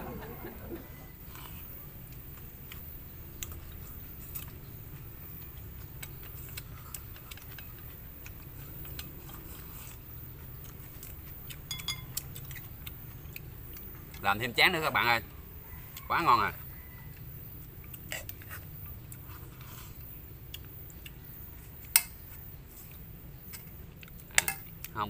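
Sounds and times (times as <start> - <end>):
chewing: 1.0 - 25.0
utensils clicking on metal bowls: 11.5 - 12.6.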